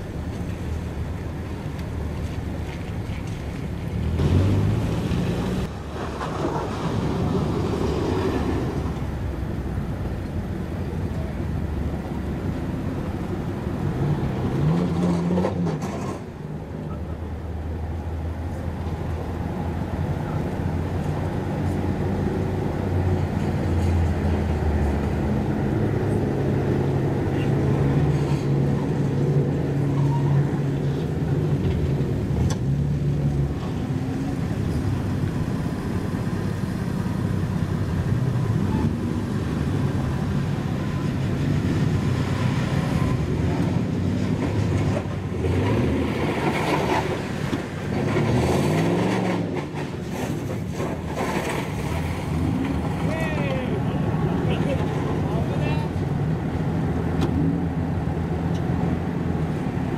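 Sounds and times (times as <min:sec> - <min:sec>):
car engines running slowly: 0:00.0 - 0:59.9
engine rev rising: 0:04.0 - 0:09.0.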